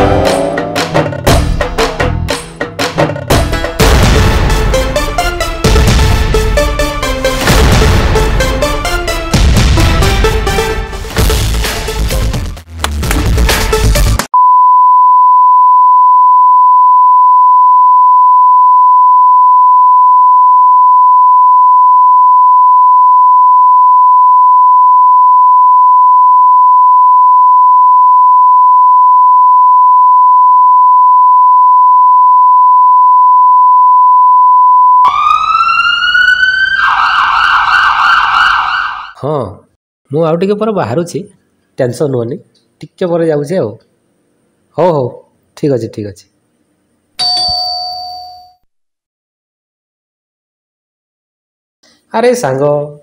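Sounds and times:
high-pitched electronic tone: 0.0 - 1.2
music: 0.0 - 14.3
ambulance siren wailing: 35.0 - 39.2.

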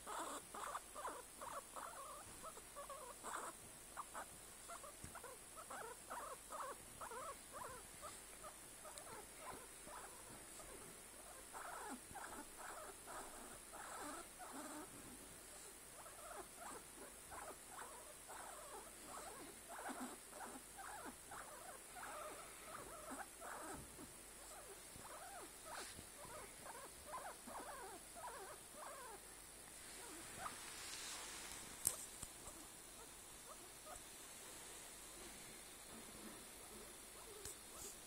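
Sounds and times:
guinea pig pulsing calls: 0.0 - 29.2.

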